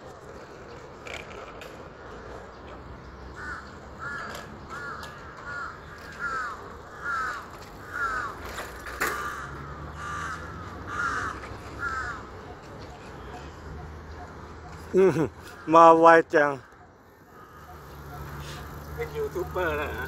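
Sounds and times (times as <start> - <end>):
crow cawing: 3.3 - 12.6, 15.4 - 18.8.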